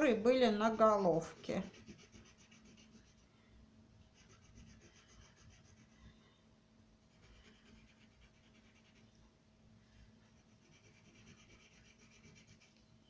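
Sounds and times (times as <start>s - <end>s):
crayon scratching on paper: 1.1s - 3.2s, 4.1s - 6.0s, 7.1s - 9.1s, 10.3s - 12.8s.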